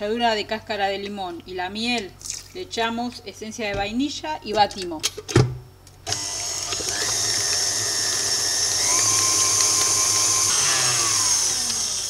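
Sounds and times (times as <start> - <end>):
stand mixer motor whining: 6.1 - 12.0.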